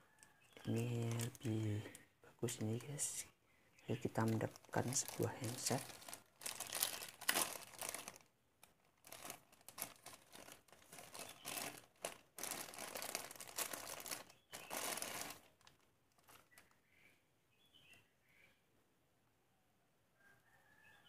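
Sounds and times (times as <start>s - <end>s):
plastic bag crinkling: 0.1s - 3.2s, 3.8s - 16.8s.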